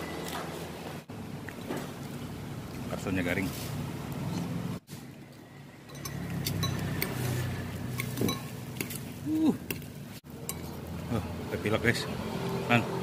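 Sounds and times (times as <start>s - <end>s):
cutlery clinking on ceramic bowl: 5.9s - 7.2s, 8.0s - 8.9s.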